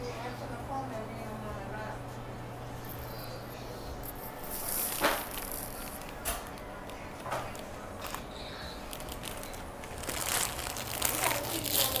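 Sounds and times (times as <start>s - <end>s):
steady low hum: 0.0s - 12.0s
rustling handling noise: 4.1s - 12.0s.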